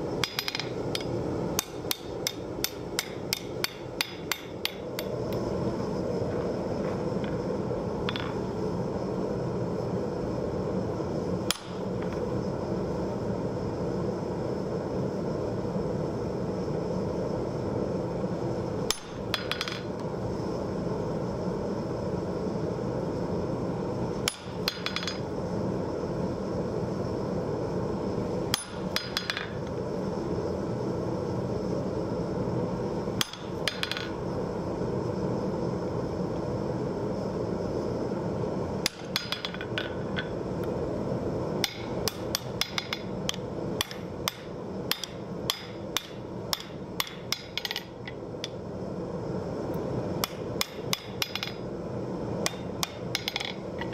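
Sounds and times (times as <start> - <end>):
hammer striking steel on anvil: 41.6 - 43.1, 43.8 - 47.9.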